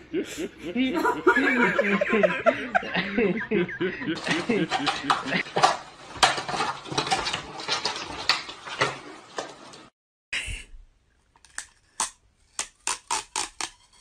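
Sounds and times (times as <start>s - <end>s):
clattering scrabbling noise: 4.0s - 9.9s.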